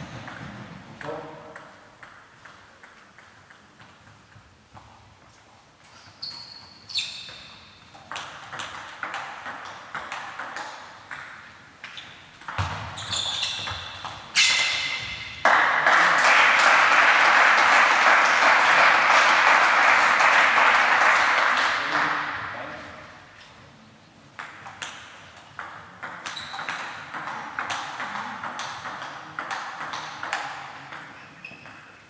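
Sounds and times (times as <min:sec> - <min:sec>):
table tennis ball hits: 0:08.0 - 0:15.8, 0:24.4 - 0:31.9.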